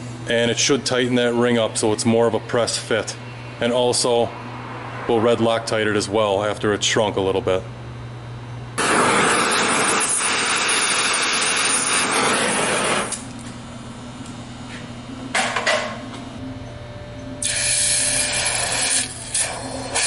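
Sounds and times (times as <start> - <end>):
gas torch flame hissing: 8.8 - 13.3, 17.4 - 20.0
hot metal quenched in water: 17.4 - 20.0.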